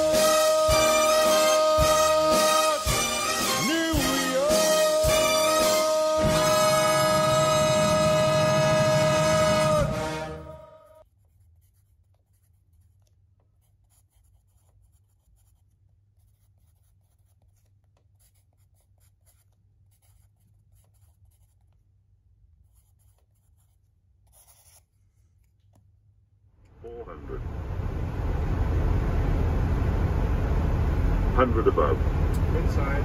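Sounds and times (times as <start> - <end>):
pencil writing on paper: 11.0 - 21.8, 22.6 - 25.6
low steady hum: 26.6 - 33.0.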